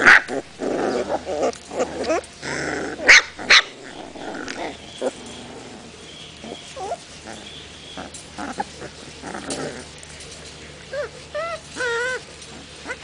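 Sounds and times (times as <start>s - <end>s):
puppies growling: 0.0s - 13.0s
puppies whimpering: 0.7s - 13.0s
puppy whining: 0.7s - 13.0s.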